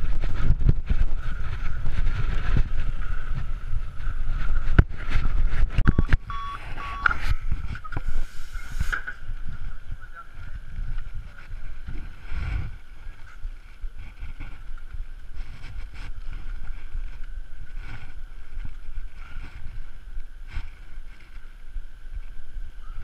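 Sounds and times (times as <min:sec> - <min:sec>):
wind buffeting microphone: 0:00.0 - 0:23.0
faint steady high tone: 0:05.9 - 0:07.2.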